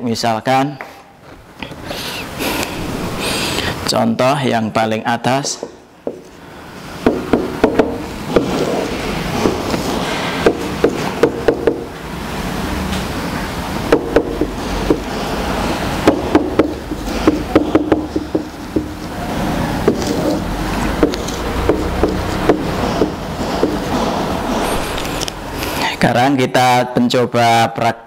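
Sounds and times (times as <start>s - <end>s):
marker tapping on whiteboard: 5.4s - 6.3s, 7.0s - 8.7s, 10.4s - 11.9s, 13.9s - 15.1s, 16.0s - 19.1s, 19.8s - 23.9s.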